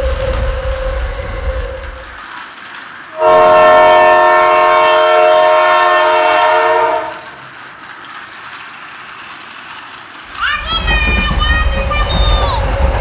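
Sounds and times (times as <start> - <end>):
toy motor and wheels on track: 0.9 - 4.2, 6.4 - 12.9
toy train electronic horn: 3.2 - 7.3.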